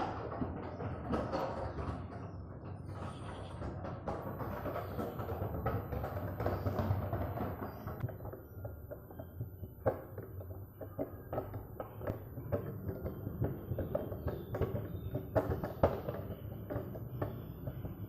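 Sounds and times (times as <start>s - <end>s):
tricycle rolling over tiles: 0.0s - 18.0s.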